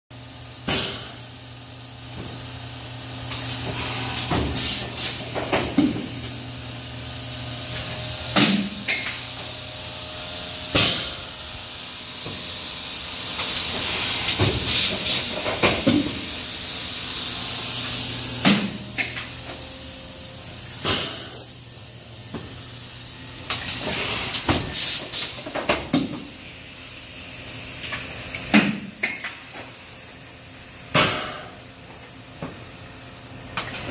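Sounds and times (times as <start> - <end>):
machine humming: 1.6 - 24.9
hissing air blasts: 3.2 - 6.8, 10.2 - 19.7, 20.3 - 25.4.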